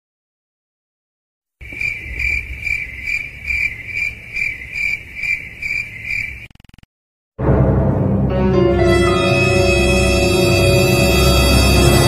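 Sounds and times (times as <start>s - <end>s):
cricket chirping: 1.6s - 6.9s.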